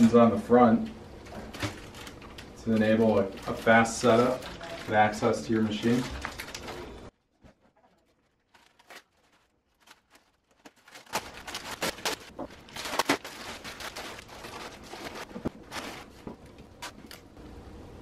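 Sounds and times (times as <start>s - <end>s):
plastic wrapping crinkling: 0.8s - 17.4s.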